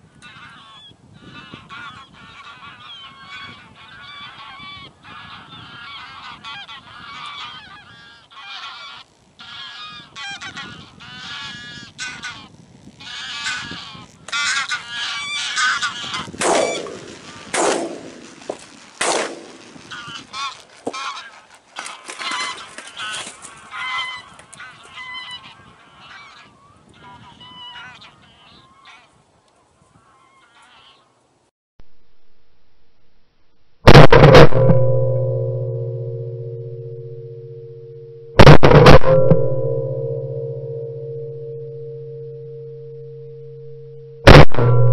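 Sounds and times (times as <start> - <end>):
flock of geese honking: 0.1 - 31.1
sharp loud sounds: 15.7 - 20.5, 33.9 - 44.9.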